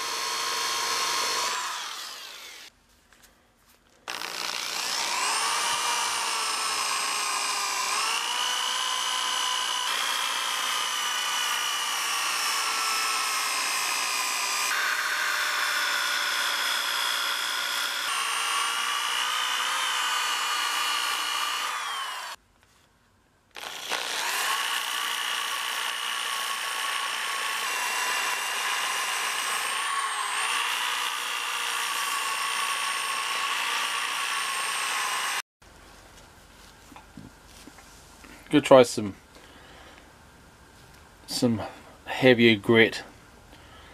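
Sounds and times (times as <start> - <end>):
orbital sander whining: 0.0 - 2.7, 4.1 - 22.4, 23.6 - 35.4.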